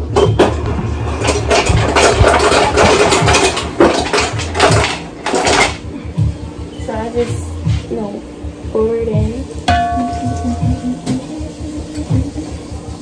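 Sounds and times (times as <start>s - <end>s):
steady low hum: 0.0s - 13.0s
clattering around steel pot: 0.2s - 5.8s.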